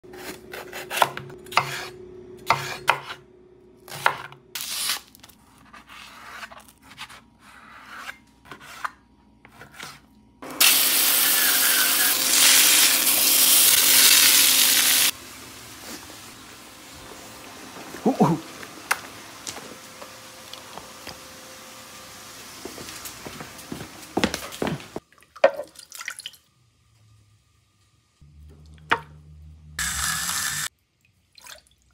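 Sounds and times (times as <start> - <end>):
knife chopping on wooden board: 2.5 - 3.2
vegetables sizzling in skillet: 10.5 - 24.1.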